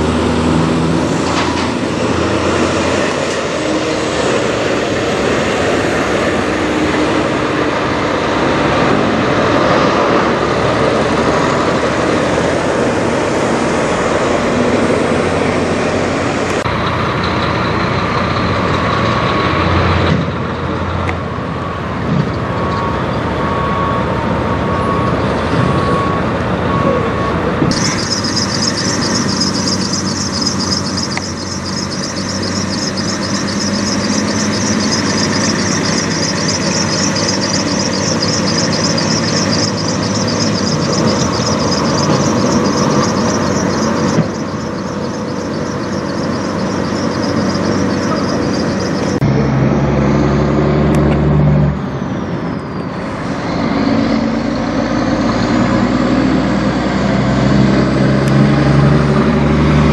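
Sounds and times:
truck diesel engines running: 0:00.0 - 0:59.9
steady beeping: 0:21.5 - 0:49.3.

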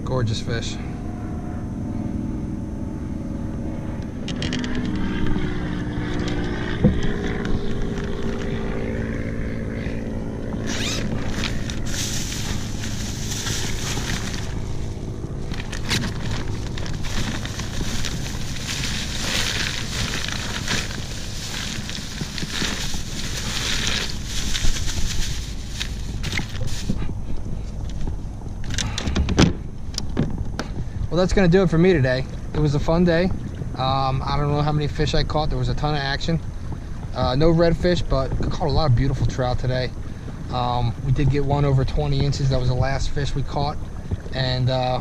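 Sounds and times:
wind buffeting microphone: 0:04.0 - 0:45.0
rustling and knocks in plastic hatch: 0:29.0 - 0:30.8.

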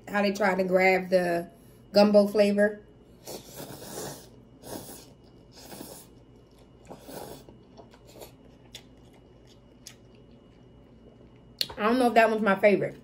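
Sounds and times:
slurping noodles: 0:03.2 - 0:08.4
chewing: 0:03.3 - 0:11.8.

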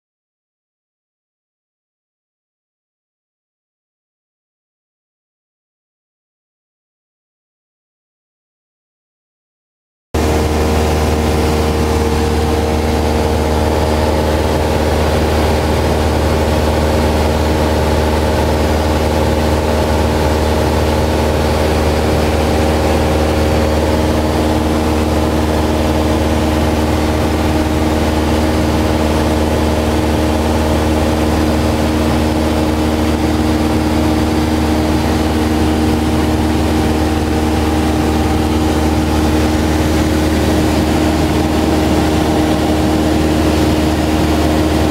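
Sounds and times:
propeller plane engine droning: 0:10.2 - 0:44.9.

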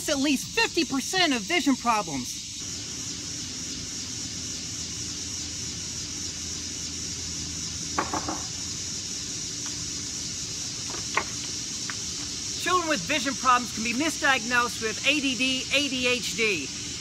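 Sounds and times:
insect chorus: 0:00.0 - 0:17.0.

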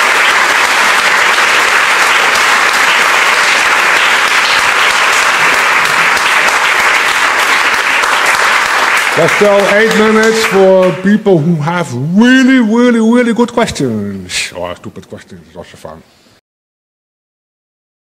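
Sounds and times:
large audience applauding: 0:00.0 - 0:11.1.

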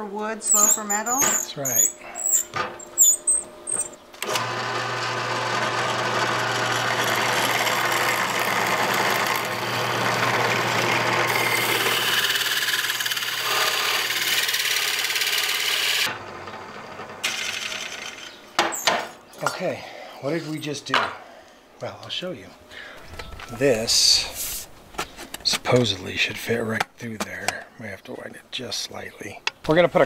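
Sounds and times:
hole saw cutting sheet metal: 0:00.4 - 0:18.9
drill press motor humming: 0:01.8 - 0:18.4.

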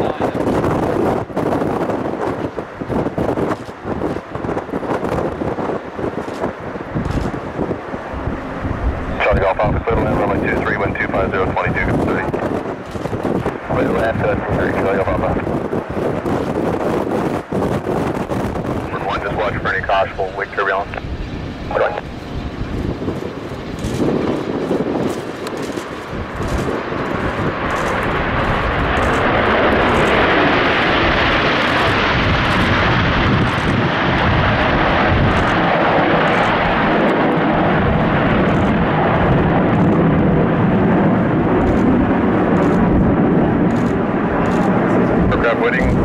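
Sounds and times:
jets passing overhead: 0:00.0 - 0:46.0.

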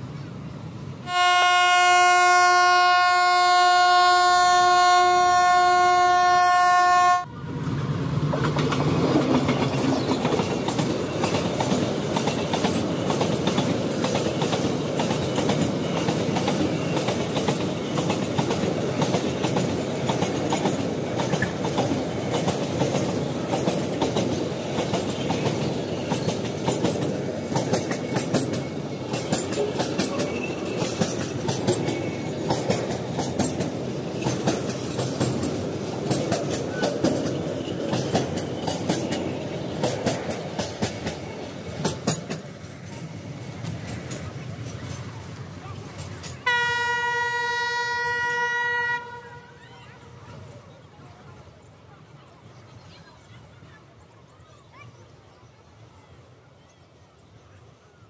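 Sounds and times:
train rumbling past: 0:00.0 - 0:54.0
locomotive horn blast: 0:01.0 - 0:07.3, 0:46.4 - 0:49.6
wheels clattering over rail joints: 0:08.2 - 0:46.7.

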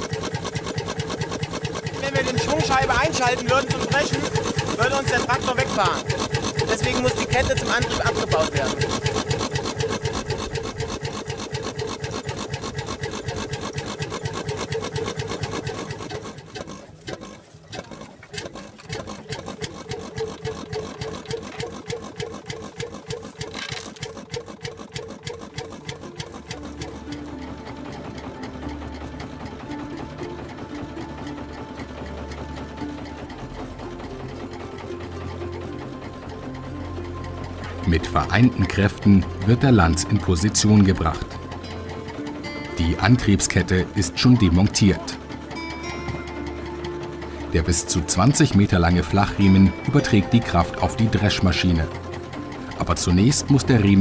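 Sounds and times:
tractor engine idling: 0:00.0 - 0:54.0
music: 0:00.2 - 0:11.2, 0:25.8 - 0:54.0.

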